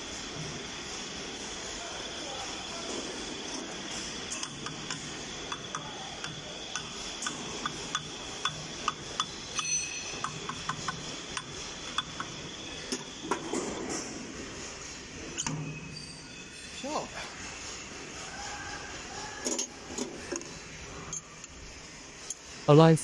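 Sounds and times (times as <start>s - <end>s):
metallic clicks and clinks: 4.3s - 13.0s
metallic ring: 4.3s - 14.2s, 15.2s - 17.1s, 21.0s - 21.5s
wrenches rattling: 4.3s - 14.2s.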